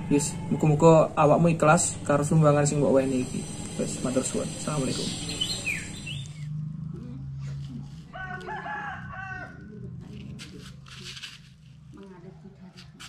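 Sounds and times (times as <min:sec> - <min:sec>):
low steady hum: 0:00.0 - 0:12.7
rooster crowing: 0:08.0 - 0:10.0.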